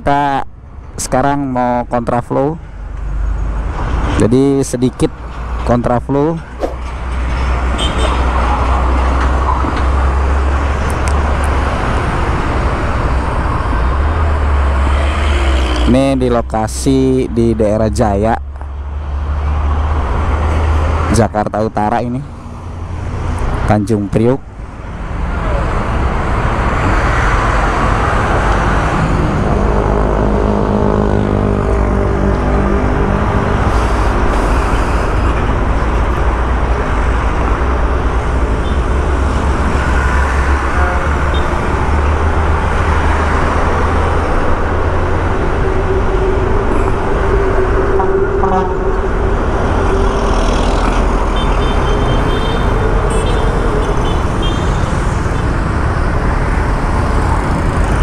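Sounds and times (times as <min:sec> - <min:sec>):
road traffic: 0:00.0 - 0:58.0
droning tone: 0:26.8 - 0:58.0.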